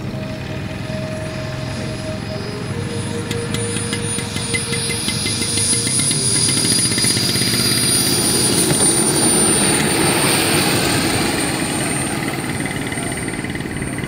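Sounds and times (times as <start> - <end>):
model jet engine whine: 0.0 - 14.0
steady rushing noise: 0.0 - 14.0.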